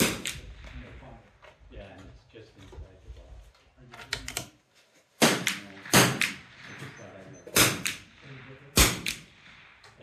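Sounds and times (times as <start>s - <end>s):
rifle shots cracking: 0.0s - 0.6s, 5.2s - 10.0s
fainter distant shots: 0.0s - 1.4s, 5.2s - 10.0s.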